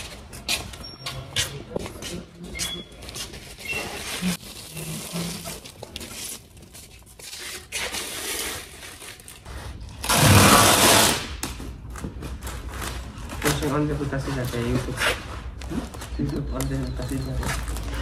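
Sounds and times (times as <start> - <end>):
foil crinkling and rustling: 3.4 - 9.4.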